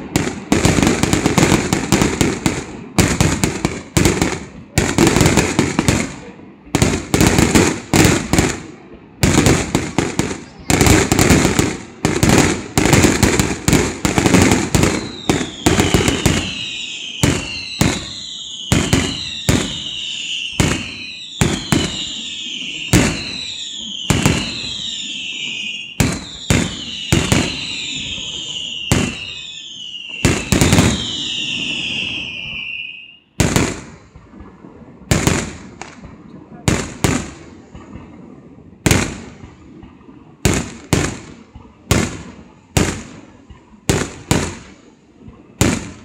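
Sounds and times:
firework bangs: 0.0s - 46.0s
high falling whistle: 15.0s - 33.4s.

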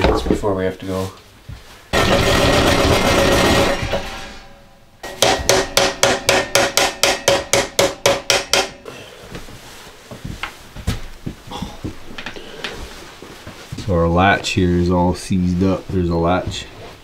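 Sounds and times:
knocks and rattles at stove: 2.0s - 4.3s, 5.1s - 8.8s
hammering on metal: 2.0s - 8.9s.

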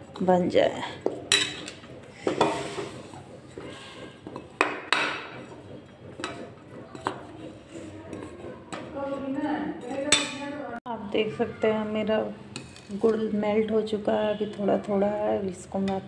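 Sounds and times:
spoon scraping a metal pan: 0.0s - 10.6s, 12.4s - 14.9s.

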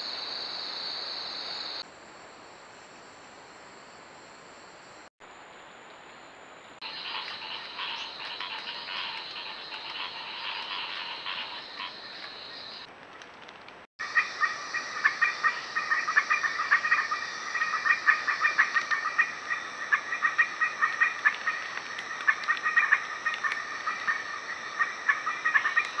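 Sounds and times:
frogs croaking: 0.0s - 1.8s, 6.8s - 12.9s, 14.0s - 26.0s.

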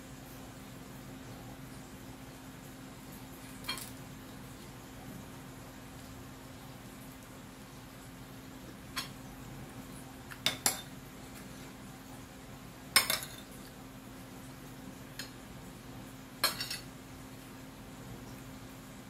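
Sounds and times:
cutlery clinking on a plate: 3.6s - 3.9s, 13.0s - 13.5s, 16.4s - 16.9s.

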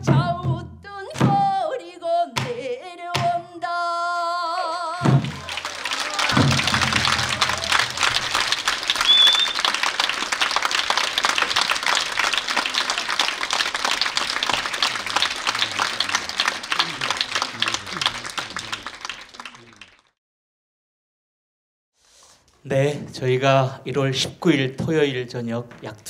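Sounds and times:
audience applauding: 5.0s - 20.2s.

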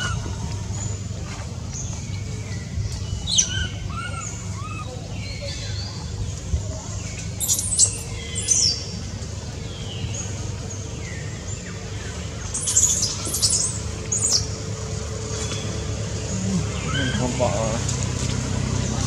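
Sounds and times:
steady low background hum: 0.0s - 19.0s
high-pitched shrill chirping calls: 7.4s - 8.7s.

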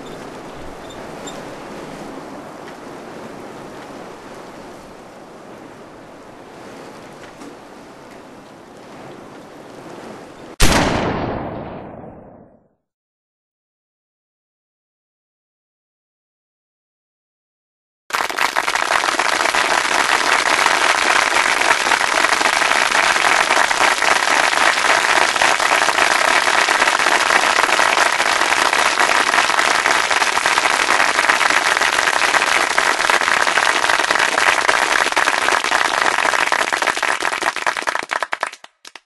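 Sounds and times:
audience applause: 18.1s - 39.0s.

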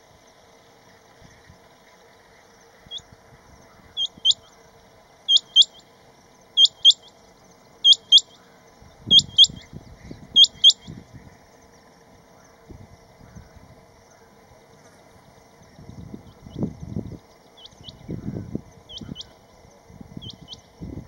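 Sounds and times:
quail calling upward whistles: 5.3s - 5.8s, 6.6s - 7.1s, 7.8s - 8.4s, 9.1s - 9.7s, 10.4s - 11.0s.

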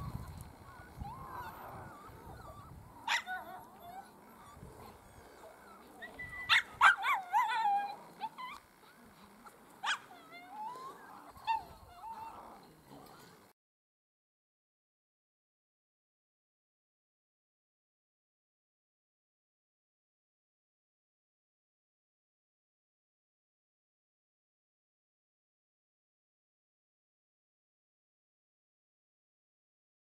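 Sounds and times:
dogs yipping and whining: 0.0s - 13.3s.

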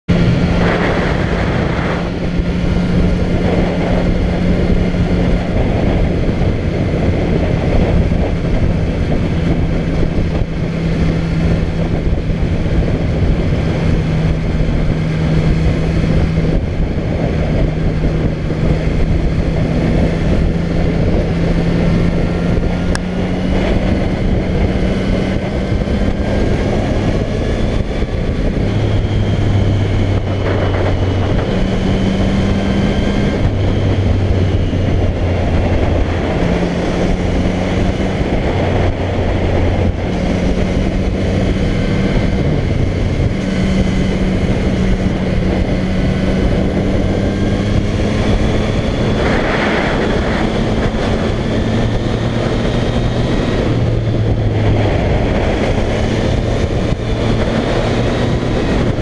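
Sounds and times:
motorcycle engine running: 0.0s - 59.0s
wind noise on microphone: 0.1s - 59.0s.

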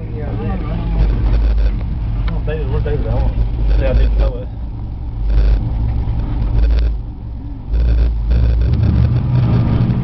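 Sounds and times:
truck engine running hard: 0.0s - 10.0s
rushing noise: 0.9s - 1.8s, 5.2s - 5.7s, 6.4s - 7.1s, 7.7s - 10.0s.

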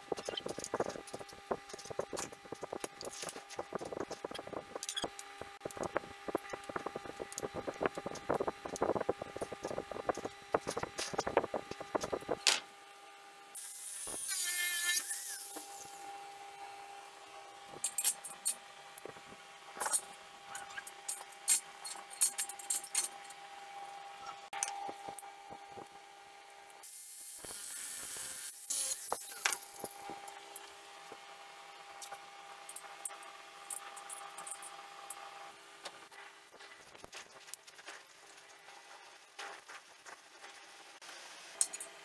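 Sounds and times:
angle grinder grinding steel: 0.0s - 12.4s.

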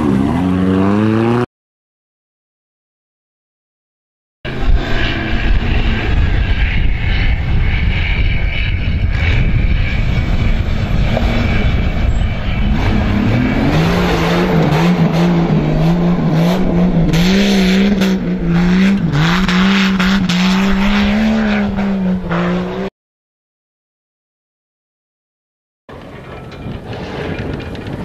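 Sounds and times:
car engine revving: 4.5s - 22.9s.

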